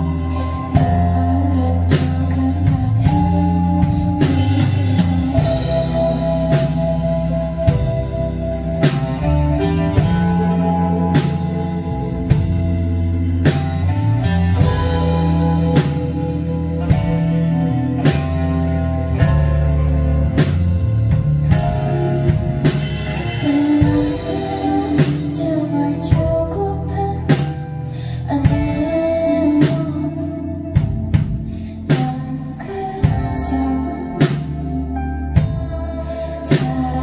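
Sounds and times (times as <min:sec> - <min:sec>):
woman singing: 0:00.0 - 0:08.0, 0:23.2 - 0:37.0
live band playing a slow song: 0:00.0 - 0:37.0.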